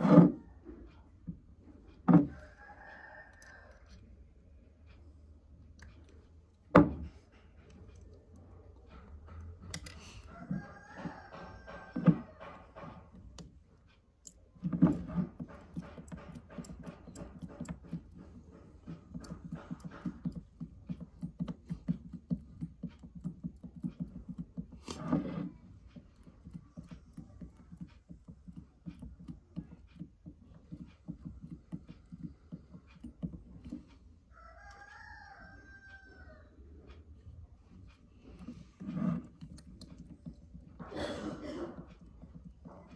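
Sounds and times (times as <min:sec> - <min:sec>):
rooster crowing: 0:02.2 - 0:04.0, 0:10.2 - 0:12.5, 0:34.3 - 0:36.6.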